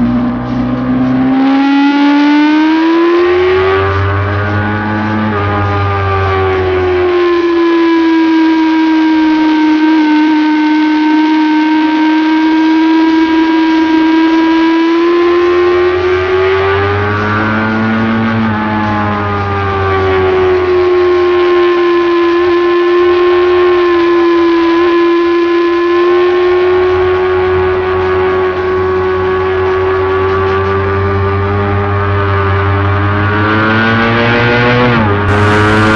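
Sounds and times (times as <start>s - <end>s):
motorcycle engine at high revs: 7.0s - 18.5s, 20.1s - 35.9s.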